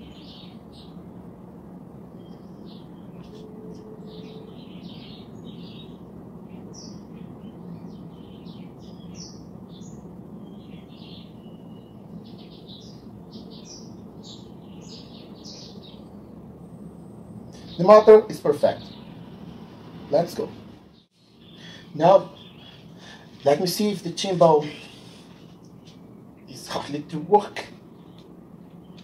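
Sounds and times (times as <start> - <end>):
small birds chirping: 0.0 - 1.1, 2.0 - 29.0
low hum: 0.0 - 17.8.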